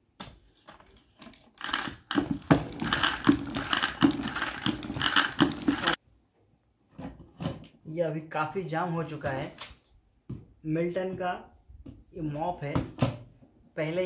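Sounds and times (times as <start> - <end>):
spin mop clattering and whirring: 0.7 - 6.0.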